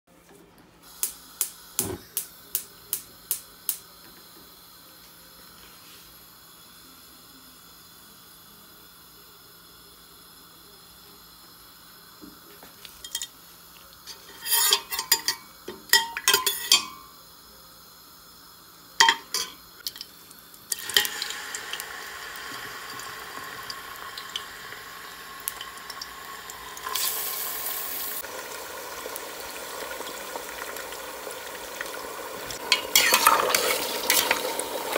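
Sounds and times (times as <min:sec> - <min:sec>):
ladle clattering in a pot: 0:14.1 - 0:17.0, 0:19.0 - 0:19.6, 0:32.6 - 0:34.6
meat sizzling in oil: 0:19.0 - 0:34.9.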